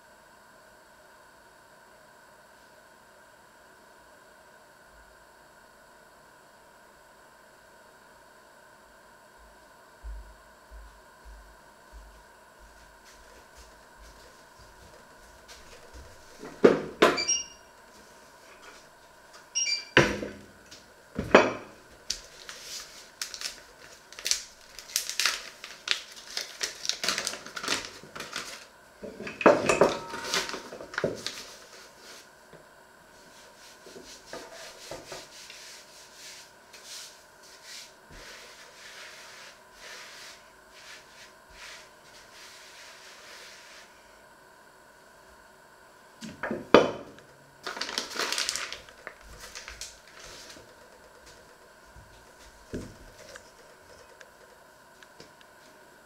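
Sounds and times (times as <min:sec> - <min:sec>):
hand rubbing flour on wood: 0:33.1 - 0:44.0.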